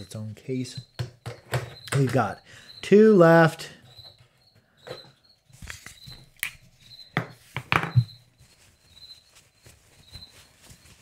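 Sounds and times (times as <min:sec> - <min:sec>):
sharp handling clicks and knocks: 0:00.8 - 0:02.3
rustling of wrapping: 0:05.5 - 0:11.0.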